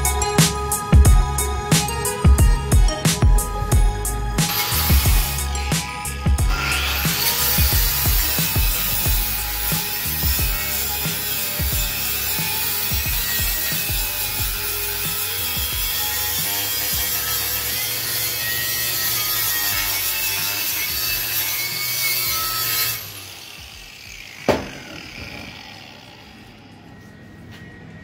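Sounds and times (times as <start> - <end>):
angle grinder motor hum: 0.0 - 27.2
wire brush scratching metal: 4.4 - 23.5.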